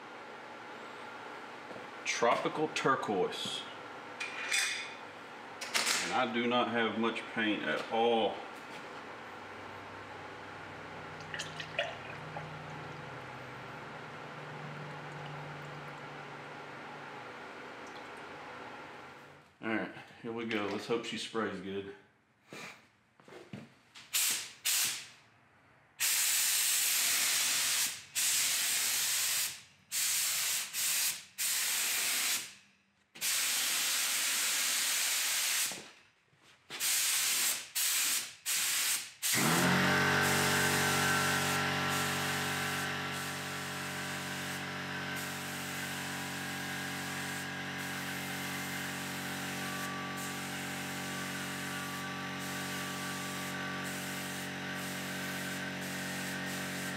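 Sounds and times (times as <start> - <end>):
steady hum: 5.1 - 19.4
spray gun hissing: 26.0 - 32.5, 33.2 - 35.8, 36.8 - 56.9.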